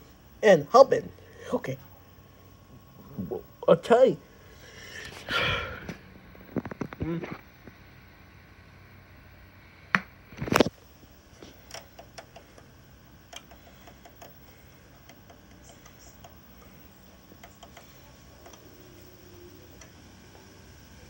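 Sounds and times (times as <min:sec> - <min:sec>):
faint irregular ticks: 0:11.4 - 0:20.8.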